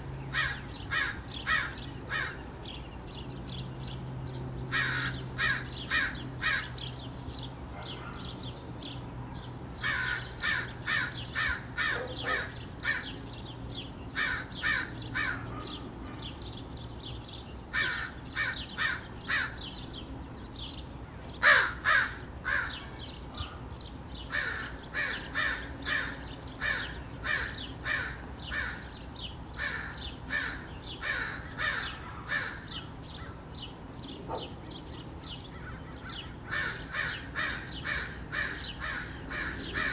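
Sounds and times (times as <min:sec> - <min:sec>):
crows cawing: 0:00.3 - 0:02.4, 0:04.7 - 0:06.8, 0:09.8 - 0:13.2, 0:14.2 - 0:15.8, 0:17.7 - 0:19.7, 0:21.4 - 0:23.6, 0:24.3 - 0:29.0, 0:29.6 - 0:33.4, 0:35.5 - 0:39.9.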